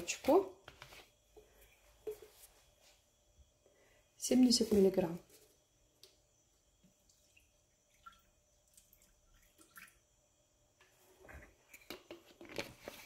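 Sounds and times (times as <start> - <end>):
milk trickling and dripping: 6.0 - 10.4.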